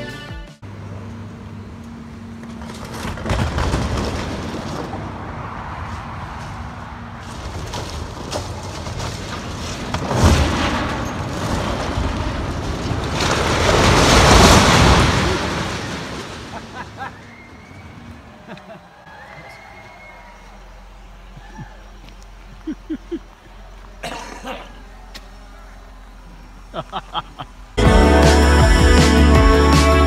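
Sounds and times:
excavator engine running: 0.6 - 14.9, 20.0 - 30.0
concrete cracking: 2.5 - 5.4, 7.2 - 17.1
silo collapsing crash: 2.5 - 17.8.

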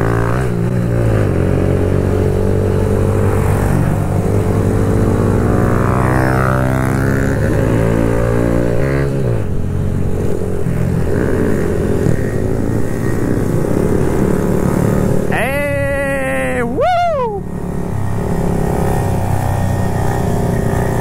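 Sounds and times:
motorcycle engine running: 17.3 - 21.0.

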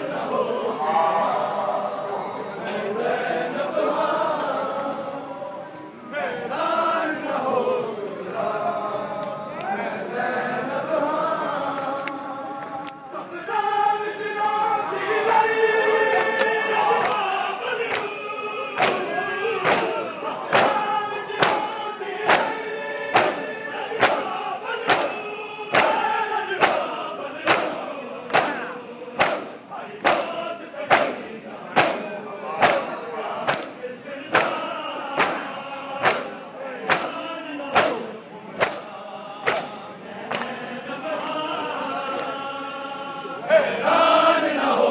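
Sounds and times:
men chanting in unison: 0.0 - 44.9
hands slapping chests: 17.9 - 18.1, 18.8 - 20.8, 21.4 - 21.7, 22.3 - 24.3, 24.9 - 26.0, 26.6 - 26.9, 27.5 - 31.2, 31.8 - 32.9, 33.5 - 34.6, 35.2 - 38.0, 38.6 - 40.5.

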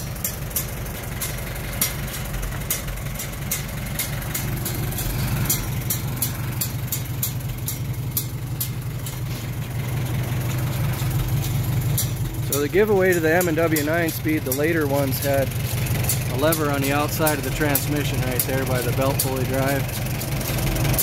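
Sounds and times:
tractor engine idling: 0.0 - 21.0.

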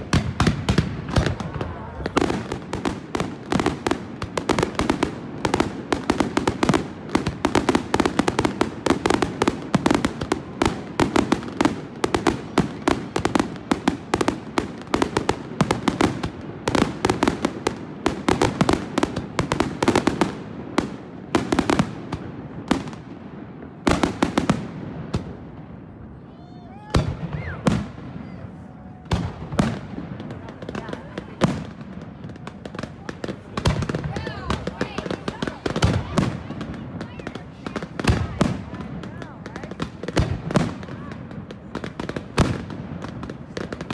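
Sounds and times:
fireworks bursting: 0.0 - 43.9.

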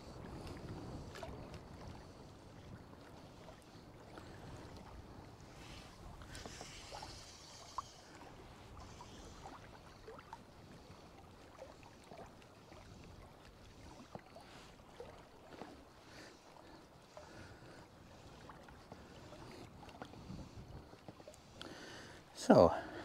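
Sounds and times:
small waves lapping on stones: 3.3 - 23.0.

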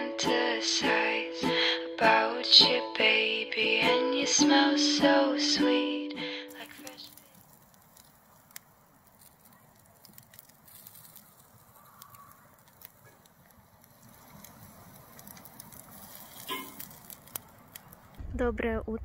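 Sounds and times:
charcoal fire crackling: 6.2 - 19.0
small pops: 6.5 - 18.2.

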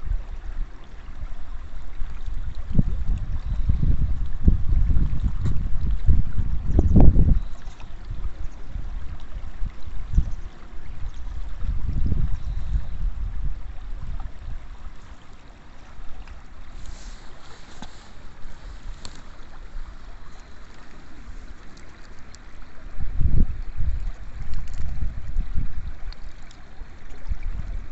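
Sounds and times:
water lapping at stony bank: 0.0 - 27.9
wind buffeting microphone: 1.6 - 14.8, 22.6 - 26.2, 27.0 - 27.9.

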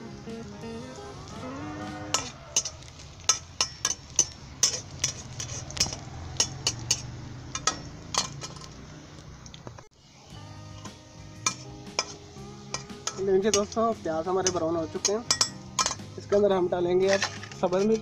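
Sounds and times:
metal spatula scraping iron pan: 1.9 - 8.8, 11.4 - 18.0.

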